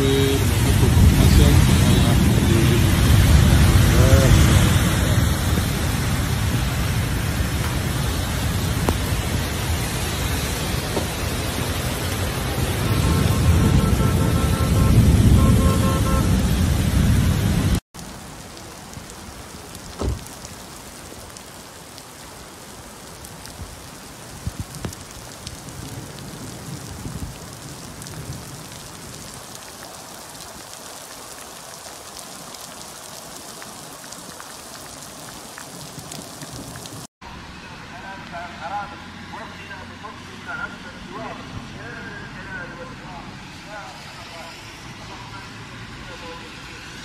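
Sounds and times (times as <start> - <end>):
rain on wet street: 0.0 - 47.0.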